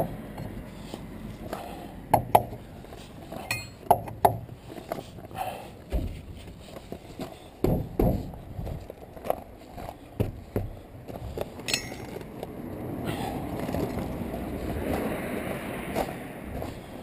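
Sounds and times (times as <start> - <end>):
footsteps crunching on gravel: 4.6 - 12.8, 13.5 - 17.0
broad rushing noise: 11.8 - 17.0.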